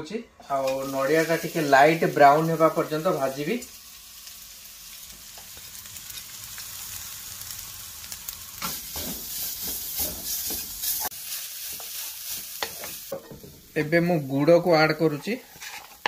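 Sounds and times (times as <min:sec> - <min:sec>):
coconut sizzling in hot oil: 0:00.5 - 0:16.0
wooden spatula scraping: 0:08.6 - 0:11.1, 0:15.0 - 0:16.0.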